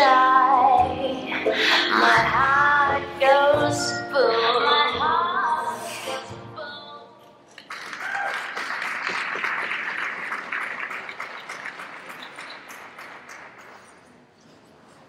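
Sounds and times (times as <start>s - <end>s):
audience applause: 7.6s - 14.0s.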